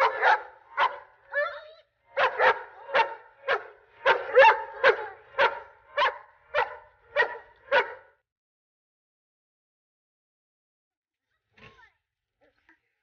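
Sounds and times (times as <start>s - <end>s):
dog barking: 0.0s - 8.2s.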